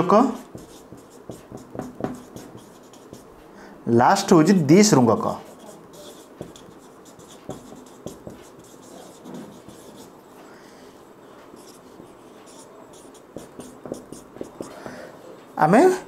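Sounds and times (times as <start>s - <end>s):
marker scratching on whiteboard: 0.1s - 3.5s, 5.2s - 15.2s
marker tapping on whiteboard: 0.4s - 3.3s, 5.5s - 10.1s, 11.4s - 15.1s.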